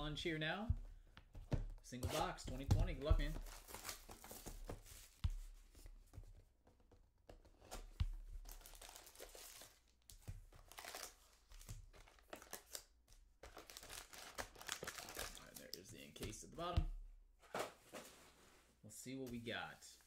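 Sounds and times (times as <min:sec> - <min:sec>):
foil packs crinkling and tearing: 0:08.5 - 0:09.8, 0:13.5 - 0:15.7.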